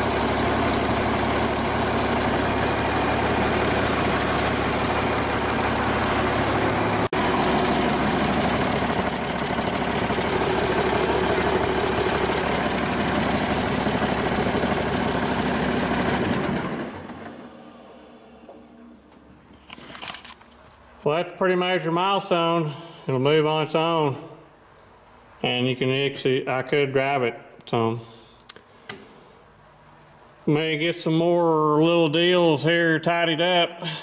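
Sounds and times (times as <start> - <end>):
diesel engine running: 0.0 - 18.3.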